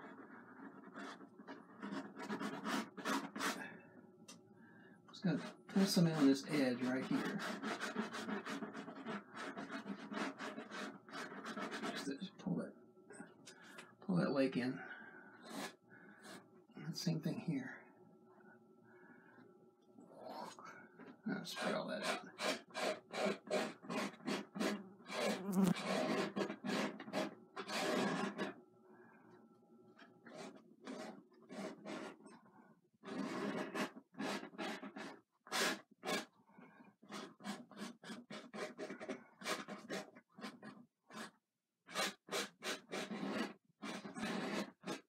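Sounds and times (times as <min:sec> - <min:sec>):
painting knife scraping canvas: 0:00.0 - 0:03.7, 0:05.2 - 0:12.6, 0:14.8 - 0:16.4, 0:20.2 - 0:28.6, 0:30.0 - 0:32.4, 0:33.0 - 0:36.4, 0:37.0 - 0:45.0.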